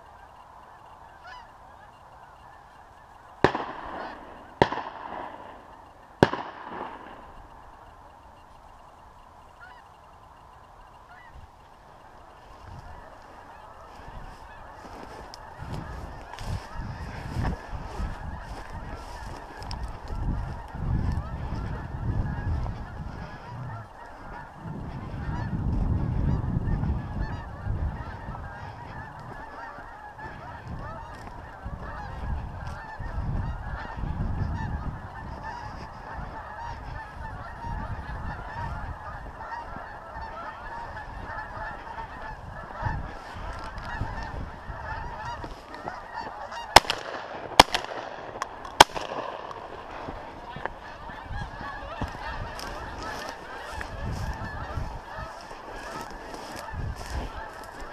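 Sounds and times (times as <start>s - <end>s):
geese honking: 0.0s - 57.9s
shotgun shots: 3.4s - 7.4s, 46.7s - 50.1s
wind rumble on microphone: 12.3s - 57.9s.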